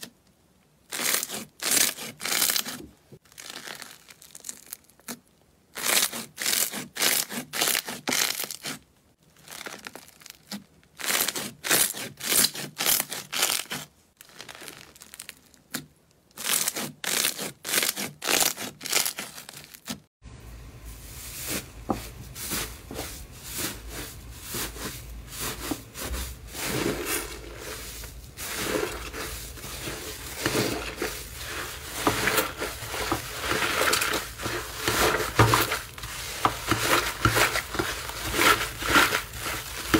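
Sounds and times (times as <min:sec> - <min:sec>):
slime squishing: 0:00.8 - 0:20.0, 0:21.4 - 0:39.9
slime crackling and popping: 0:00.9 - 0:20.0
low steady hum: 0:20.2 - 0:39.9.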